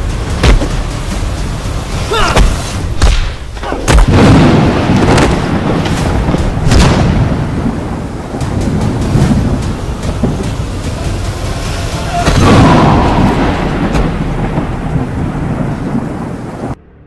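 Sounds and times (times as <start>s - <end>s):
punch hits: 2.3s - 4.5s
heavy boom with low rumble: 3.0s - 11.0s, 11.9s - 16.8s.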